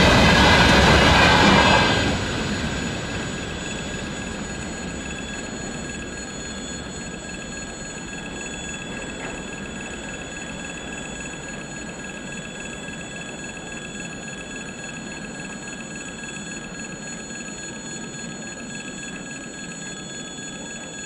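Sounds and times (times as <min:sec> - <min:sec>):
freight train rumbling: 0:00.0 - 0:14.6.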